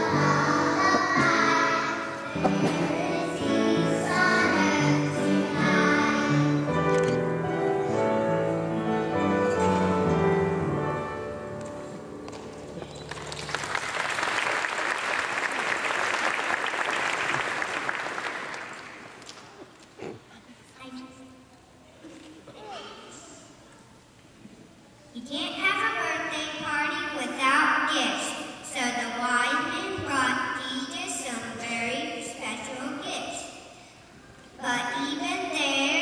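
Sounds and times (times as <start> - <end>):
children's choir singing: 0.0 - 8.3
audience applauding: 12.7 - 19.3.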